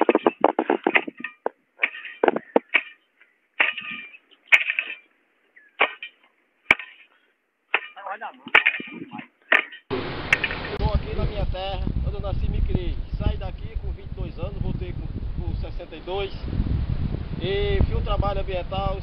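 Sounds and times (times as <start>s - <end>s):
crunching and scraping on dry grass: 0.0s - 5.1s, 5.7s - 10.8s.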